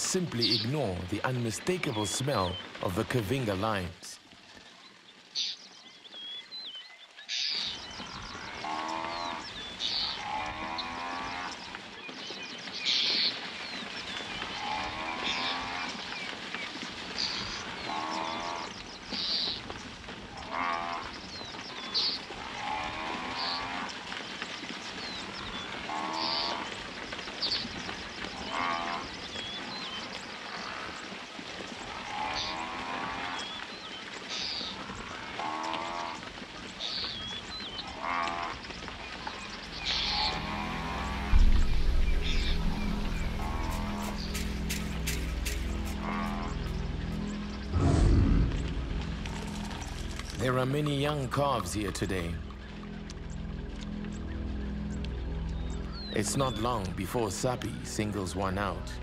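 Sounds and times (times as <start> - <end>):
hooves scuffling in dust: 0.0 - 57.7
buffalo calling: 39.3 - 51.0.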